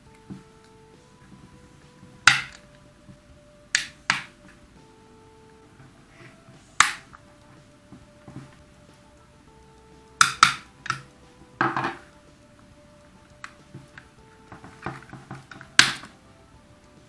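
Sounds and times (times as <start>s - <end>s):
plastic latches snapping: 2.2s - 2.6s, 14.6s - 16.1s.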